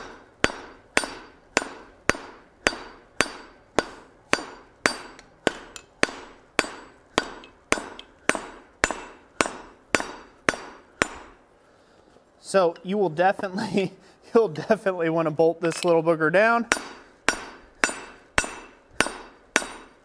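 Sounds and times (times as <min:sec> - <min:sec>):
hammer striking steel on anvil: 0:00.0 - 0:11.4, 0:16.6 - 0:20.0.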